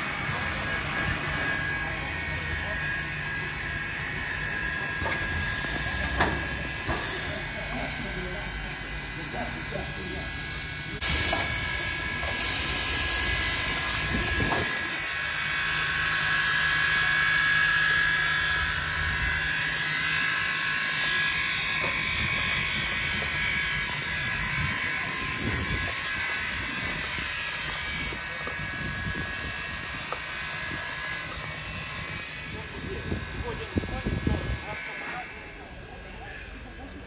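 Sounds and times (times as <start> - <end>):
steam locomotive hissing: 0.0 - 36.7.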